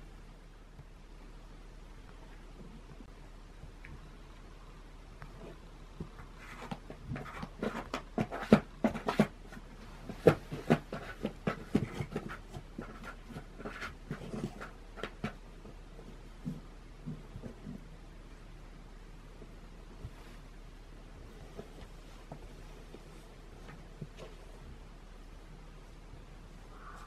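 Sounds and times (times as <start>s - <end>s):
cats scratching cardboard: 5.2s - 18.0s, 19.4s - 24.9s.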